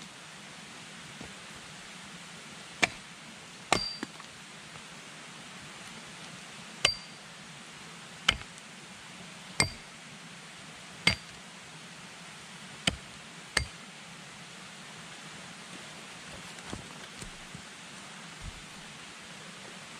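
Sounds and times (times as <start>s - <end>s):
axe striking wooden pole: 2.8s - 3.0s, 3.7s - 4.1s, 6.8s - 7.2s, 8.3s - 8.5s, 9.6s - 9.9s, 11.1s - 11.4s, 13.6s - 13.8s
short metallic ring: 3.8s - 4.0s, 6.8s - 7.2s.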